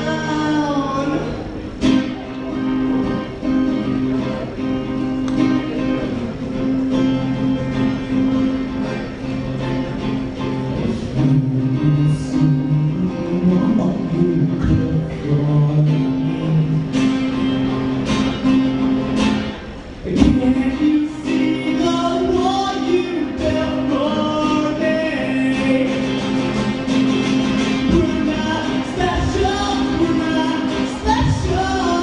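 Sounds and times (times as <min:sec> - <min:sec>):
young man singing: 0:00.0 - 0:03.2, 0:10.4 - 0:18.0, 0:20.0 - 0:32.0
strummed guitar: 0:00.0 - 0:32.0.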